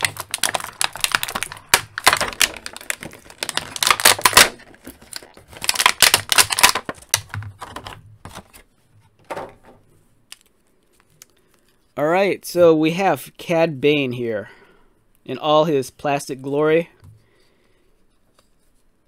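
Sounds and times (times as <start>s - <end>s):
plastic packaging crackling: 0.0s - 8.6s.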